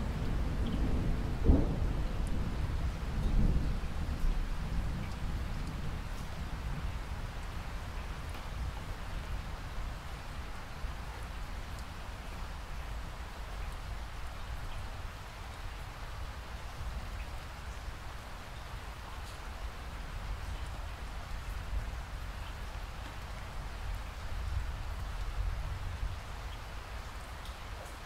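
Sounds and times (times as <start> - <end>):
steady rain hiss: 0.0 - 28.0
raindrop ticks: 0.1 - 9.0, 10.5 - 15.8, 19.2 - 19.6, 20.3 - 25.4, 26.4 - 28.0.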